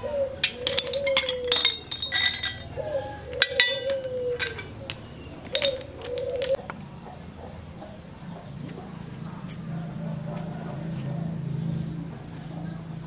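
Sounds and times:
small metal parts clinking: 0:00.4 - 0:02.8, 0:03.4 - 0:06.6.

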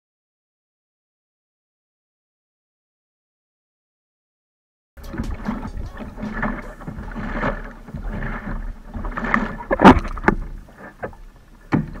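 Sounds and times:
paddle splashes: 0:05.0 - 0:12.0
water slapping against plastic hull: 0:05.0 - 0:12.0.

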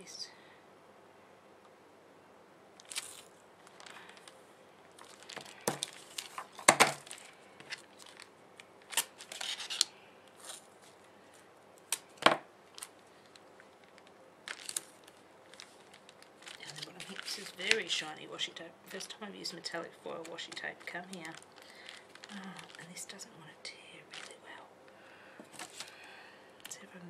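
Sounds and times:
foil tape crinkling and tearing: 0:02.8 - 0:23.2, 0:24.1 - 0:24.5, 0:25.5 - 0:26.0.

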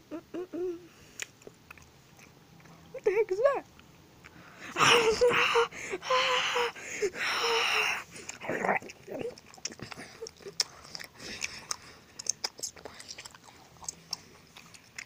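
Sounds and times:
breathy vocal noise: 0:04.3 - 0:12.1
chomping mouth sounds: 0:08.2 - 0:15.0.

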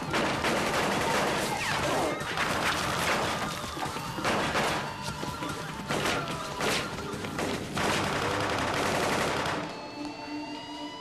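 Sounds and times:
rapid gunshots: 0:00.0 - 0:09.8.

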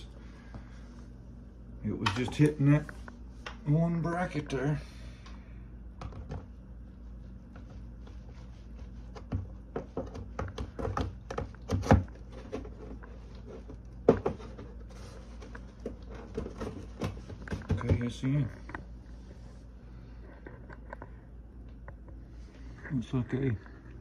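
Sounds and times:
steady low hum: 0:00.0 - 0:24.0
plastic part knocking and clicking: 0:09.2 - 0:12.1.

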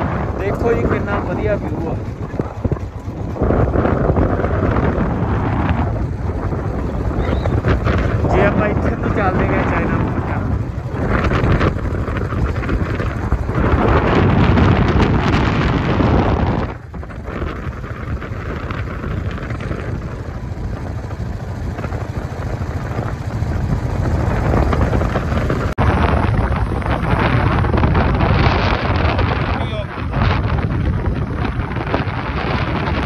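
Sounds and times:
motorcycle engine: 0:00.0 - 0:33.0
road noise: 0:00.0 - 0:33.0
wind buffeting microphone: 0:00.0 - 0:33.0.

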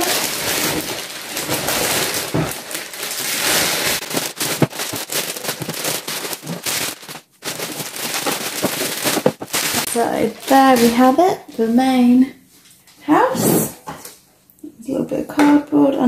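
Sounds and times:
plastic wrapping crinkling: 0:00.0 - 0:12.0.

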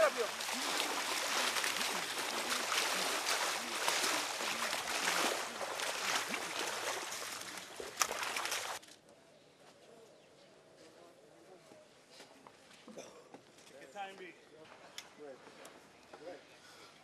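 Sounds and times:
muddy water splashing: 0:00.0 - 0:08.8.

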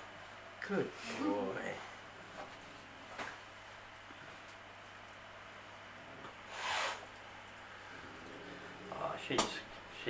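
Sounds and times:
cat hissing: 0:06.5 - 0:07.0.

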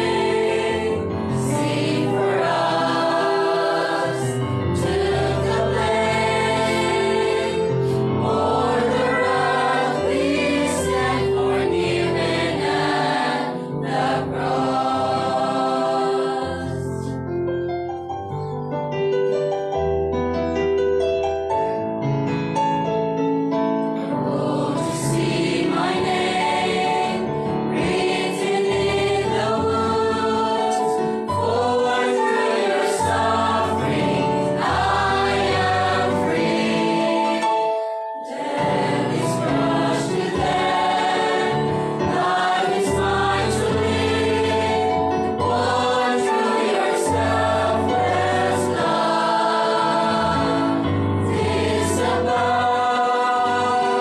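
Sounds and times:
mixed choir singing a hymn: 0:00.0 - 0:17.3, 0:24.0 - 0:54.0.

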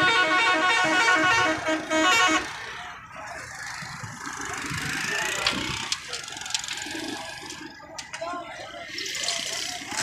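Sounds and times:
vehicle horn honking: 0:00.0 - 0:02.6
street traffic noise: 0:00.0 - 0:10.0.

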